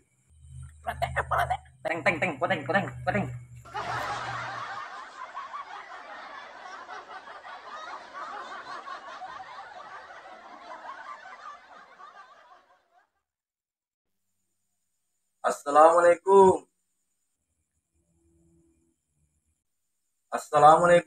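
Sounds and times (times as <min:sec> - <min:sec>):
crowd laughing: 0:00.9 - 0:13.2.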